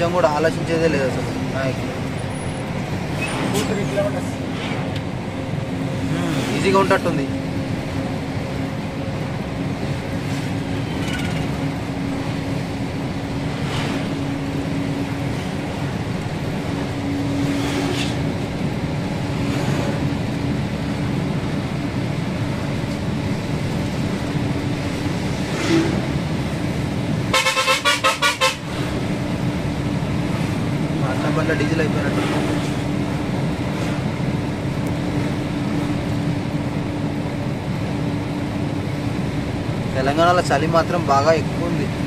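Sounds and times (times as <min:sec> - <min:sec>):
lorry engine and road noise: 0:00.0 - 0:42.0
horn toots: 0:27.3 - 0:28.7.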